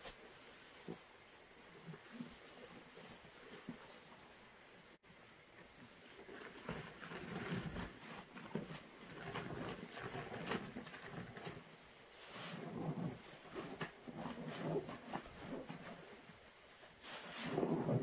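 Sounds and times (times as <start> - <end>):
foam crackling: 6.1 - 16.4
wet sponge squelching: 6.2 - 16.3.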